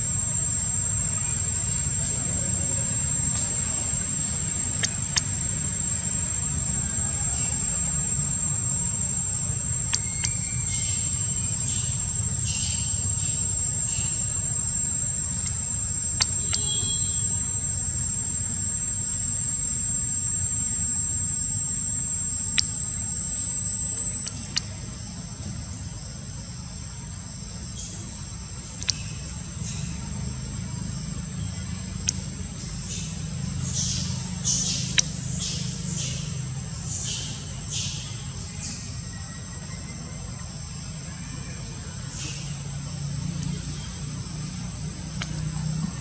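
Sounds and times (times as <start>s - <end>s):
high-pitched insect drone: 0.0s - 46.0s
sharp clicks: 3.2s - 6.1s, 9.7s - 11.0s, 15.3s - 17.4s, 24.0s - 24.7s, 28.8s - 29.1s.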